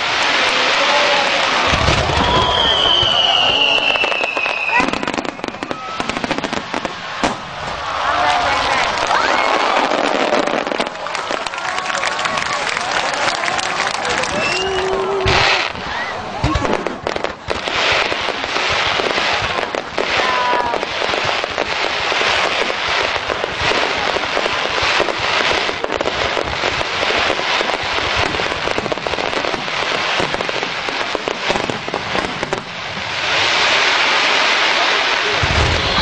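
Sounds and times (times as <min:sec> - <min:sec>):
fireworks cracking and popping: 0:00.0 - 0:36.0
firework whistle: 0:01.1 - 0:07.8, 0:13.8 - 0:17.0, 0:35.3 - 0:36.0.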